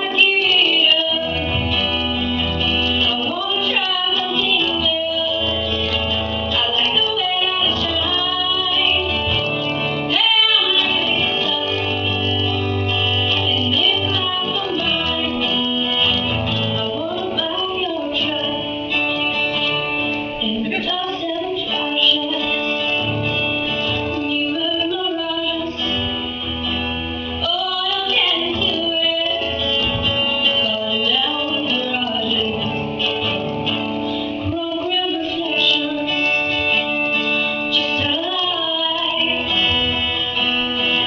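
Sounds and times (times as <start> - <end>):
woman singing: 0.0 - 2.0, 2.8 - 26.3, 27.4 - 33.8, 34.4 - 41.0
acoustic guitar: 0.0 - 41.0.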